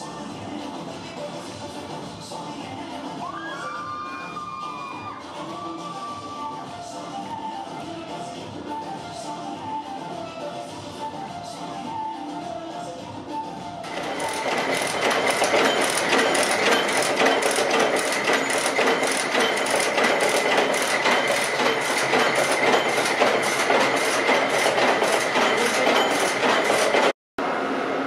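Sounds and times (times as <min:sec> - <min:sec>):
factory machinery clattering: 0:13.9 - 0:27.1.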